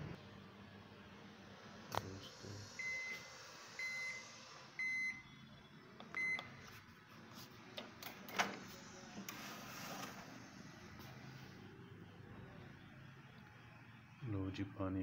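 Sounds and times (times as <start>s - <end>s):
microwave beeping: 2.8s - 6.7s.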